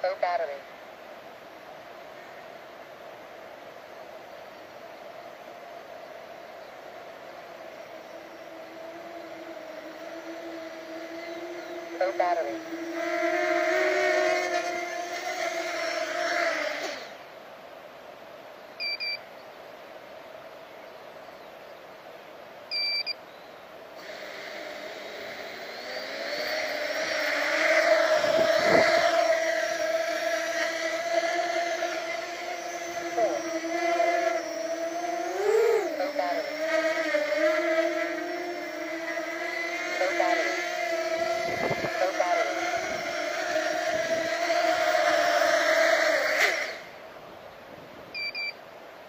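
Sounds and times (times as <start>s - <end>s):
faint steady hiss: 0.0s - 14.7s, 16.0s - 31.1s, 45.9s - 49.0s
quadcopter motors whining: 5.4s - 17.3s, 24.0s - 47.1s, 48.1s - 48.5s
buzzer double beep: 18.8s - 19.2s, 22.7s - 23.2s, 48.2s - 48.6s.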